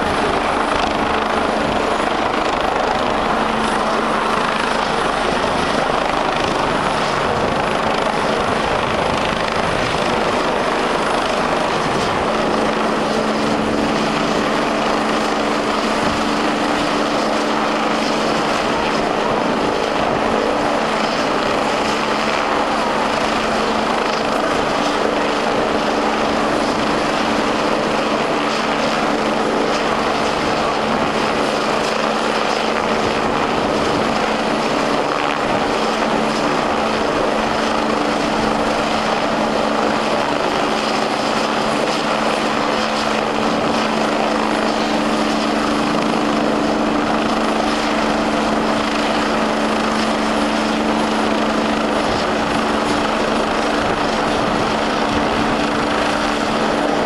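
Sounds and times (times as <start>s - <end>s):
helicopter running close by: 0.0s - 57.0s.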